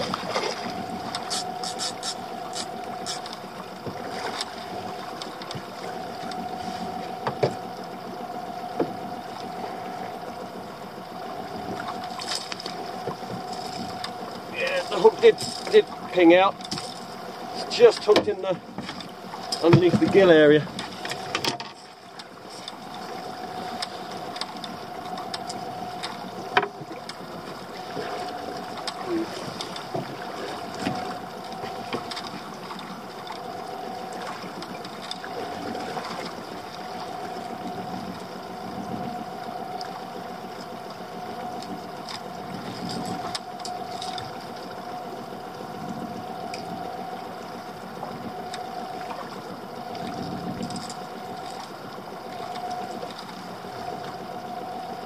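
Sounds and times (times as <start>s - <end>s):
boat engine idling: 0.0s - 55.0s.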